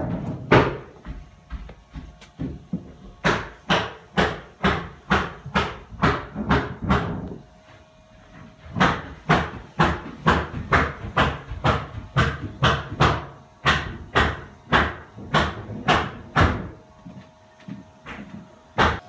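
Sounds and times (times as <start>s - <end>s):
footsteps walking: 0.0s - 3.2s, 7.3s - 12.6s, 15.1s - 18.7s.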